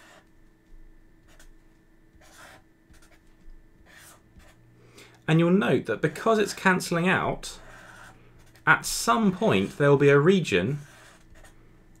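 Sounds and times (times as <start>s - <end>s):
marker scratching on paper: 1.3s - 4.6s, 7.6s - 9.9s, 10.8s - 11.6s.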